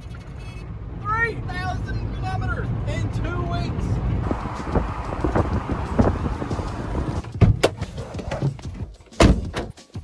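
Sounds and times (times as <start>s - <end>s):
van door shutting thump: 7.2s - 8.5s, 9.2s - 9.8s.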